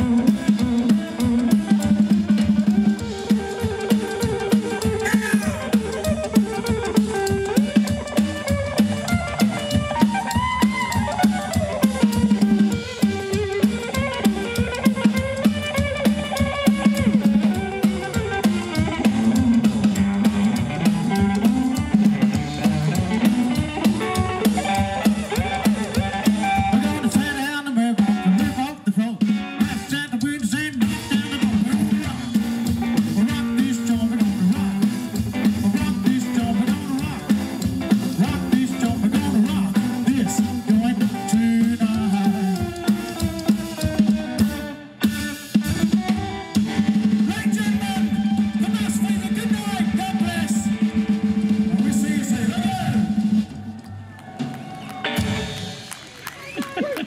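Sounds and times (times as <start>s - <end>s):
double bass walking line: 0.0s - 27.4s, 30.6s - 44.8s
electric guitar lead with bent notes: 0.0s - 56.5s
drum kit beat: 0.0s - 57.0s
rock and roll band playing: 0.0s - 57.0s.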